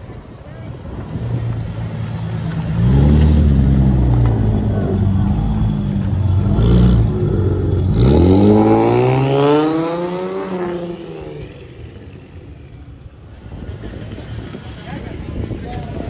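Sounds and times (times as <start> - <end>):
car engine revving: 1.1 - 12.2.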